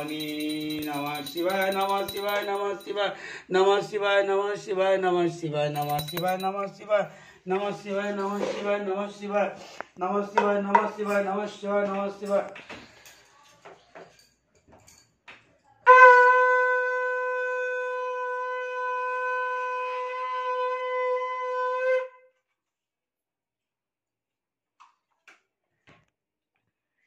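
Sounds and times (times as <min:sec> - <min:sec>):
conch shell blown: 0:15.8 - 0:22.2.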